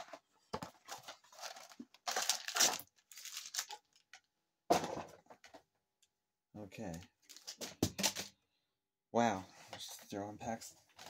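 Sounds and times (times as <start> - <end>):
foil packs crinkling: 0.8 - 4.0
packs clattering onto desk: 7.3 - 8.3.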